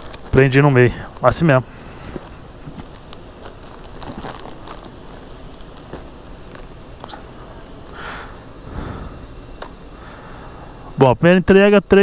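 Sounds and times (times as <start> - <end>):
plastic bag and papers crinkling: 0.0 - 6.7.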